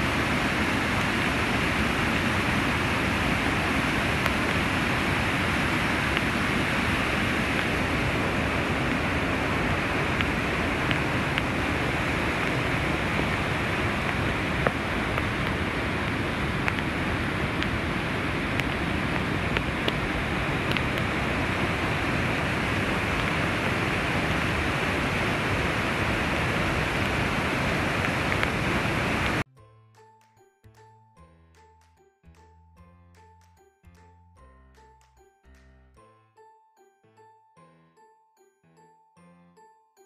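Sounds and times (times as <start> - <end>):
water rushing over spillway: 0.0 - 29.4.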